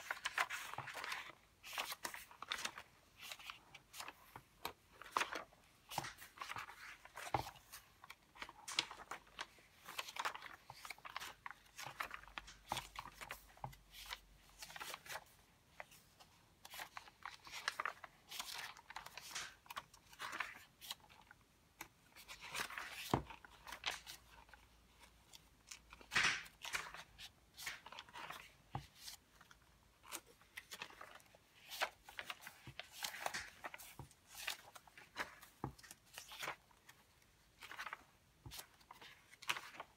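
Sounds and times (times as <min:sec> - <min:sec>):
paper pages turning: 0:00.0 - 0:39.9.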